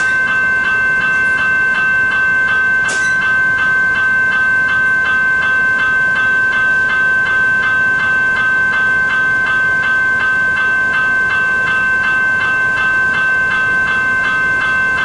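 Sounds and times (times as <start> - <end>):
level crossing bells ringing: 0.0 - 15.0.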